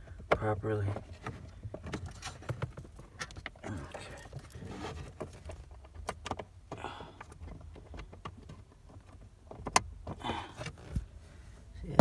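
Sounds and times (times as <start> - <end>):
rustling and scraping: 0.3 - 6.6, 7.2 - 12.0.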